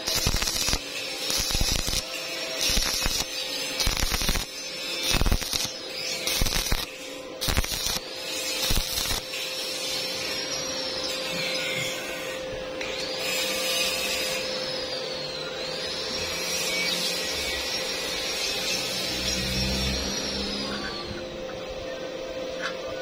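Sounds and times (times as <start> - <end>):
welding arc crackling: 0.0 - 11.5.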